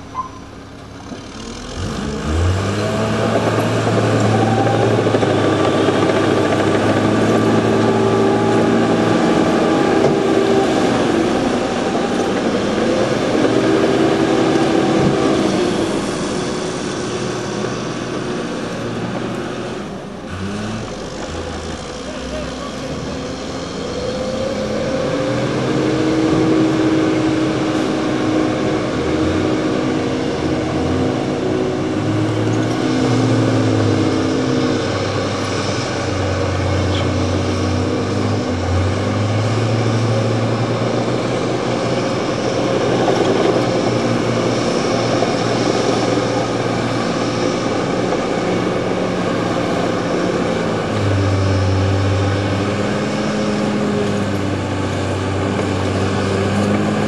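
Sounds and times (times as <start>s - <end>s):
diesel engines working under load: 0.0s - 57.0s.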